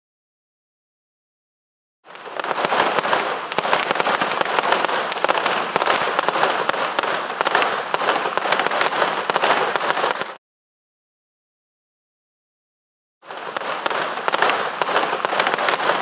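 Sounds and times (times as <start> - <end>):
firecrackers popping: 2.1 - 10.4, 13.2 - 16.0.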